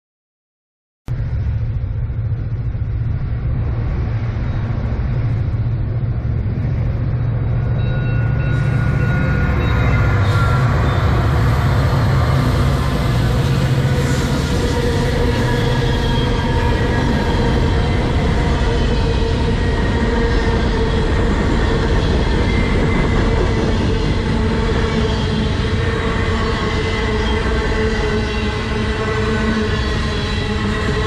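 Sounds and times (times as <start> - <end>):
diesel locomotives rumbling: 1.1 - 31.0
wheel and rail noise: 1.1 - 31.0.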